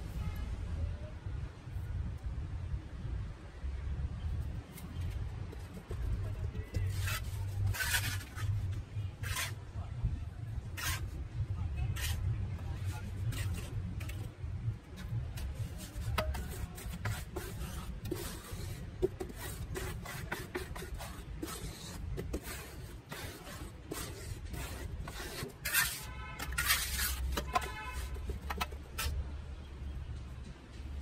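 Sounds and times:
board rubbing across cement: 0:04.8 - 0:09.7, 0:10.7 - 0:11.2, 0:11.9 - 0:14.3, 0:14.9 - 0:29.2
trowel scraping cement: 0:05.6 - 0:09.6, 0:10.7 - 0:11.2, 0:11.9 - 0:14.3, 0:15.0 - 0:29.2.

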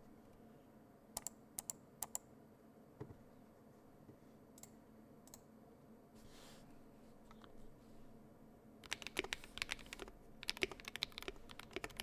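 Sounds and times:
mechanical keyboard clacks: 0:08.8 - 0:12.0.

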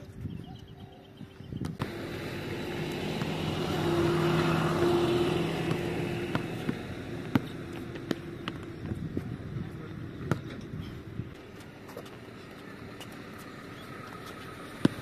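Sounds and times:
basketball bouncing: 0:01.6 - 0:12.2, 0:14.2 - 0:15.0
vehicle engine passing: 0:01.8 - 0:10.2.

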